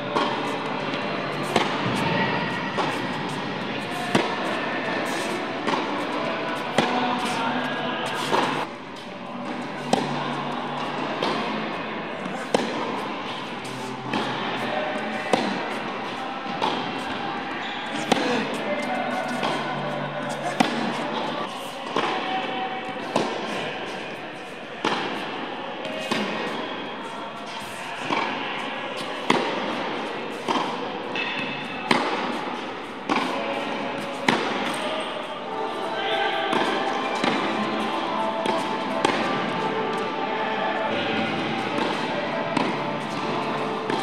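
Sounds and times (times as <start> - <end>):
tennis ball being hit: 0.2 - 8.7, 9.4 - 11.6, 12.2 - 22.2, 23.1 - 23.6, 24.8 - 26.6, 29.0 - 34.8, 36.5 - 44.0
background music: 35.4 - 44.0.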